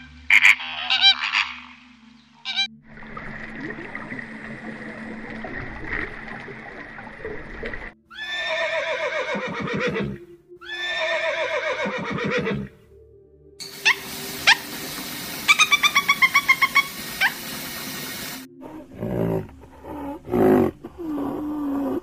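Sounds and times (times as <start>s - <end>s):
horse neighing: 8.1s - 12.8s
budgerigar chirping: 15.5s - 17.4s.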